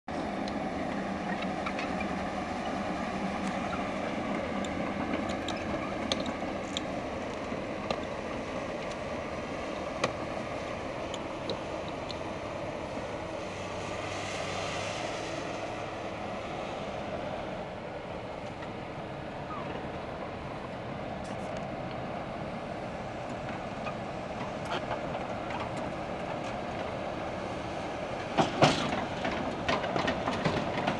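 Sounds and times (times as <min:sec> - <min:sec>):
excavator diesel engine running: 0:00.1 - 0:30.9.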